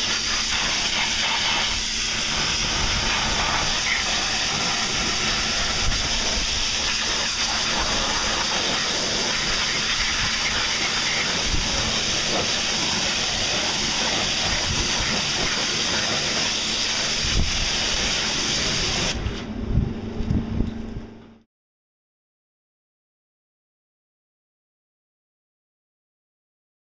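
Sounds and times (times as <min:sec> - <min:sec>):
pressure washer spraying: 0:00.0 - 0:19.4.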